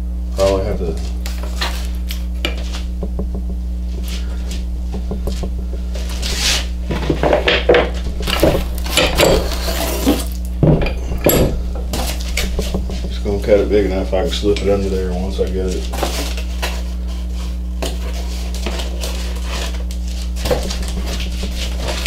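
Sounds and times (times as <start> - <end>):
steady low hum: 0.0 - 22.0
cardboard rustling: 0.8 - 13.6, 15.3 - 22.0
metal pipe clamps clanking: 6.9 - 13.6.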